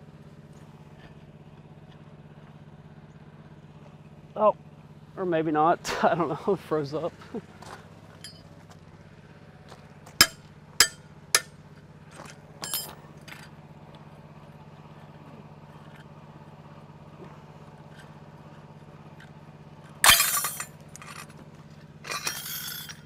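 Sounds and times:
footsteps on gravel: 7.1 - 8.9, 9.6 - 10.6
metallic snap and clatter: 20.0 - 21.4, 22.0 - 23.0.

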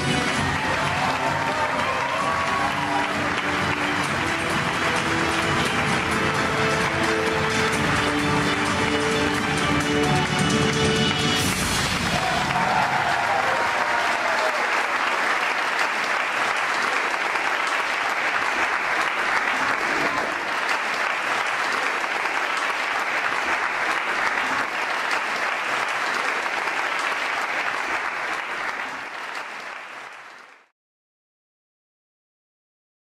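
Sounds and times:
audience applauding: 0.0 - 30.7.

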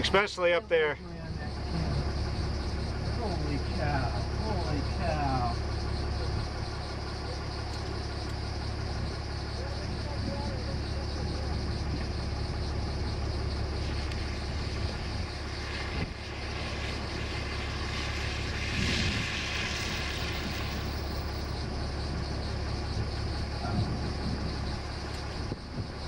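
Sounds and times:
vehicle engine idling: 0.0 - 26.0
wind noise: 13.8 - 26.0.

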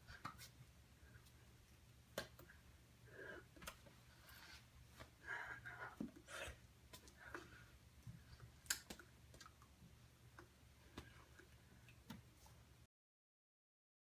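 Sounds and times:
low steady hum: 0.0 - 12.9
hand and mouth clicks: 8.6 - 9.7.

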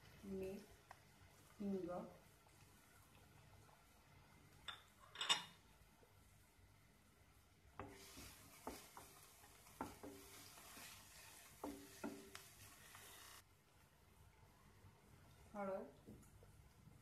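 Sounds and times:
onions sizzling in oil: 7.5 - 13.4
wooden spatula knocking on pan: 7.8 - 10.5, 11.6 - 12.5.

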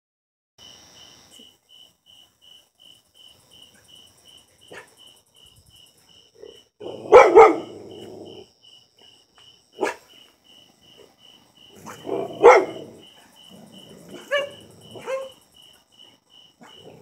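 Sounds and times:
crickets chirping: 0.6 - 17.0
dog barking: 4.7 - 5.0, 6.4 - 8.4, 9.8 - 10.2, 11.8 - 13.0, 13.7 - 15.4, 16.6 - 17.0.

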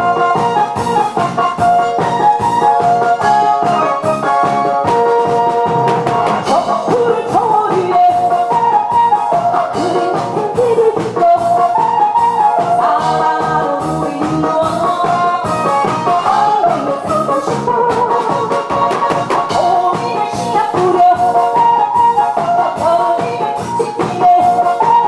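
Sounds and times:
musical accompaniment with beat: 0.0 - 25.0
woman singing into a microphone: 6.4 - 25.0.

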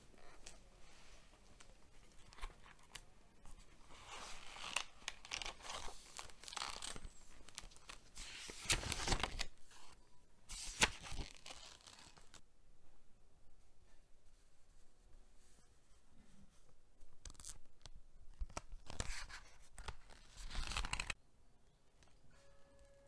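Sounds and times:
notebook page flips: 0.2 - 12.4, 18.4 - 21.2
paper rustling and crinkling: 0.2 - 12.4, 18.4 - 21.2.

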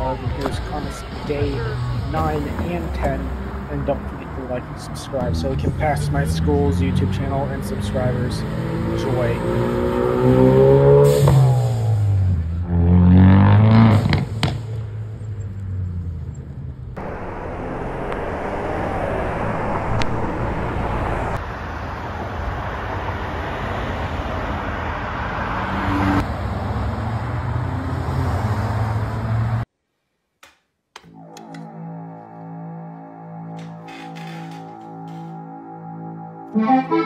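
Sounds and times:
car engine accelerating: 0.0 - 21.4
road traffic noise: 0.0 - 29.7, 31.1 - 37.0.

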